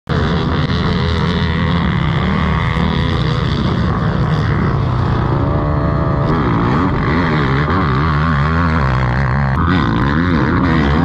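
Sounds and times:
quad engines revving: 0.1 - 11.0.

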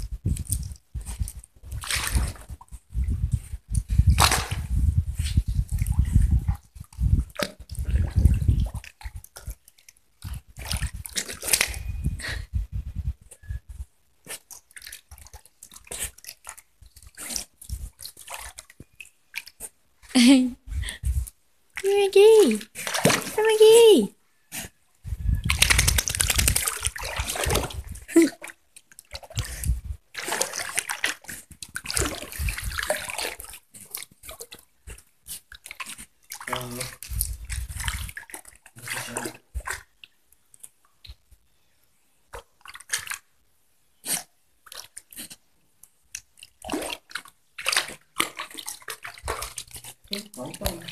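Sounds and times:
dog splashing in water: 0.5 - 2.6, 4.1 - 4.8, 5.6 - 11.9, 14.2 - 19.7, 21.8 - 23.8, 25.4 - 39.9, 42.3 - 43.2, 46.1 - 50.9.

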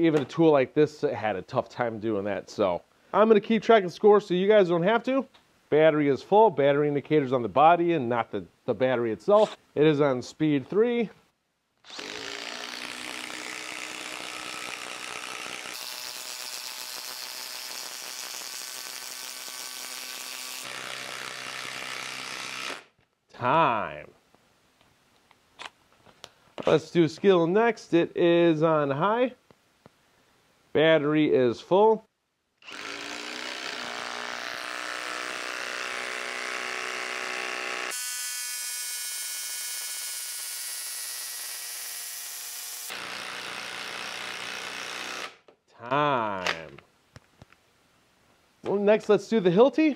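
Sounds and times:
impact driver driving screw: 11.9 - 22.8, 42.5 - 45.5.

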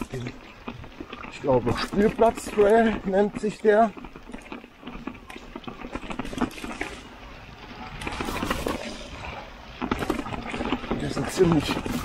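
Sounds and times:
bike knocks and rattles: 0.0 - 12.0
tyres rolling and skidding: 0.0 - 12.0.

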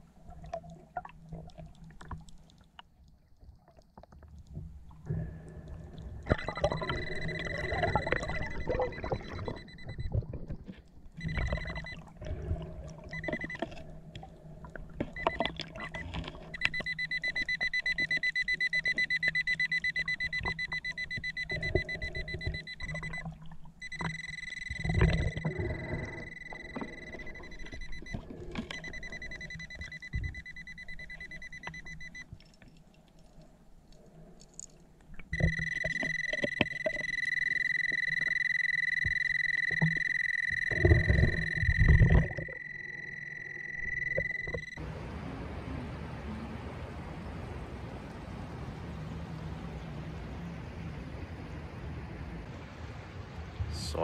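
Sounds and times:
metal detector high tone: 6.3 - 10.2, 11.2 - 12.0, 15.2 - 23.2, 23.8 - 32.2, 35.3 - 44.9.

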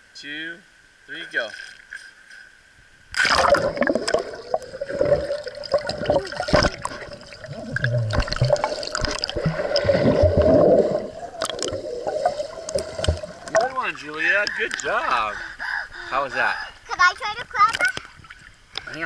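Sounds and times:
child splashing into pool: 3.2 - 12.3
muffled underwater bubbling: 3.2 - 13.8.

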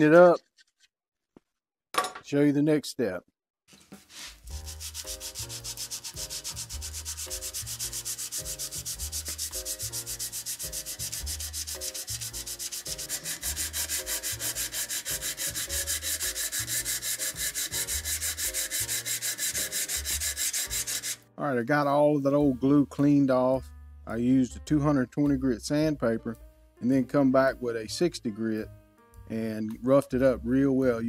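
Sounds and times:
sandpaper scrubbing on steel: 3.8 - 21.2.

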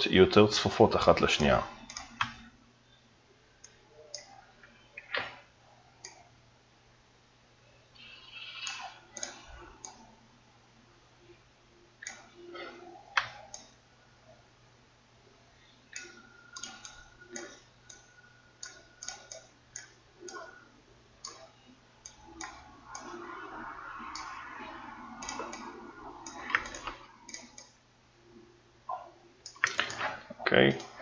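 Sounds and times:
computer mouse clicking: 1.8 - 2.5, 3.6 - 4.4, 6.0 - 6.2, 8.0 - 10.1, 12.0 - 13.8, 15.9 - 20.6, 21.2 - 27.8.

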